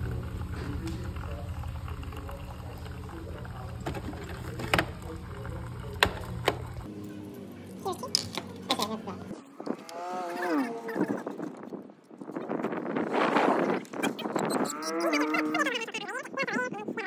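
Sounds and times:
coffee maker pump buzzing: 0.0 - 6.9.

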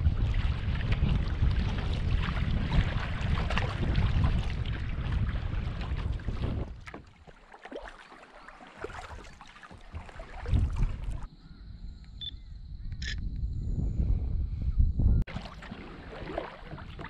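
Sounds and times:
wind buffeting microphone: 0.0 - 7.0, 9.8 - 15.4
water lapping and dripping: 0.0 - 11.3, 15.2 - 17.0
water sloshing and splashing: 0.0 - 11.3, 15.3 - 17.0.

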